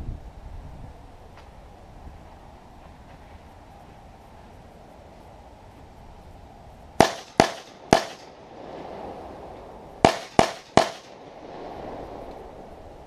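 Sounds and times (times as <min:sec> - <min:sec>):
handgun shots with echo: 0:07.0 - 0:08.3, 0:10.0 - 0:11.2.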